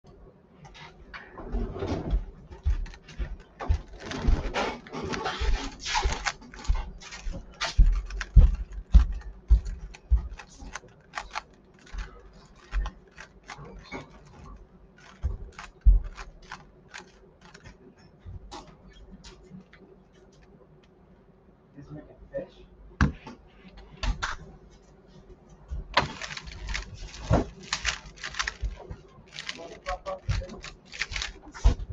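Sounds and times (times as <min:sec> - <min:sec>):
puzzle cube plastic clicks: 0:05.8 - 0:14.4, 0:15.0 - 0:17.8, 0:26.0 - 0:31.6.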